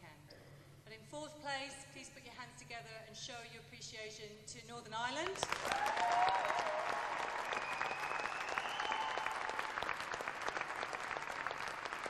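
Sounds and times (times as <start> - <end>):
crowd applauding: 5.4 - 12.0.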